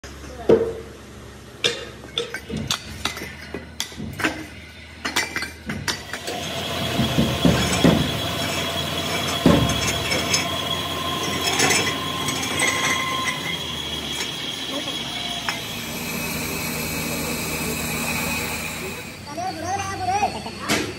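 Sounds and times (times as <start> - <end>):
parts rattling inside machine: 1.6 - 19.3
blasting machine whining: 5.9 - 20.9.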